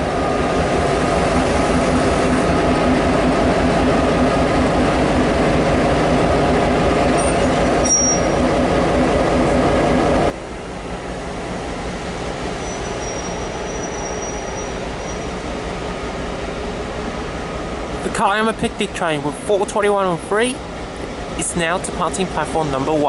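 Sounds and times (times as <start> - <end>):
locomotive engine running: 0.0 - 23.0
thin high whine: 7.2 - 8.7.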